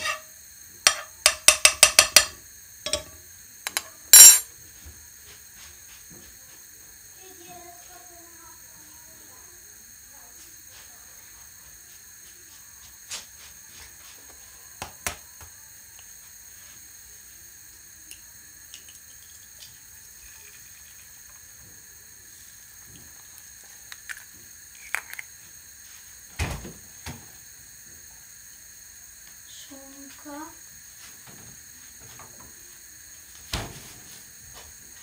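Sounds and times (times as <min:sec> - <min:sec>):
faint steady hiss: 0:00.0 - 0:35.0
light kitchen clicks and knocks: 0:00.9 - 0:03.9.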